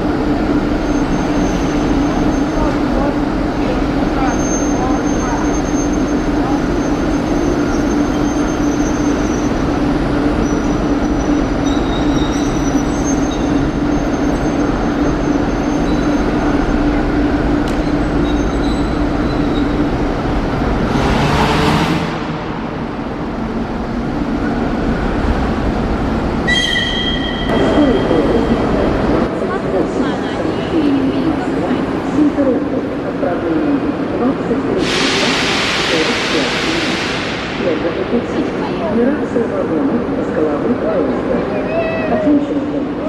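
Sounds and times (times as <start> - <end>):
diesel locomotive engine running: 0.0 - 41.7
high squeal: 17.8 - 19.9, 26.4 - 28.4.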